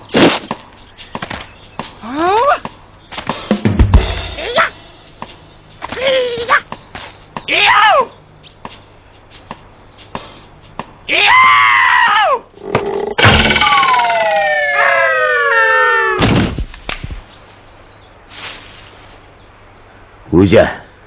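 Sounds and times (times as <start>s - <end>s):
rising and falling cartoon tone: 12.8s - 16.2s
heavy thud: 13.2s - 13.8s.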